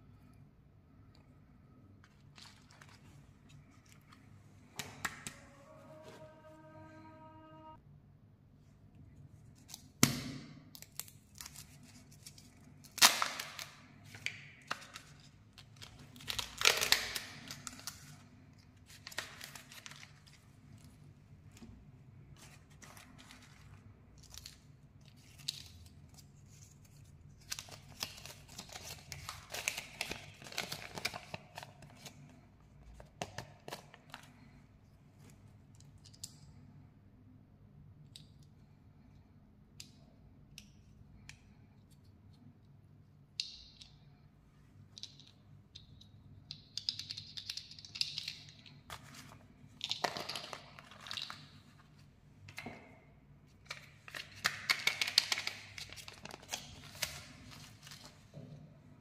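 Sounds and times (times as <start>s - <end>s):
paper and plastic crinkling: 2.0s - 4.2s, 10.8s - 21.0s, 22.3s - 34.6s, 48.8s - 52.1s, 53.6s - 58.4s.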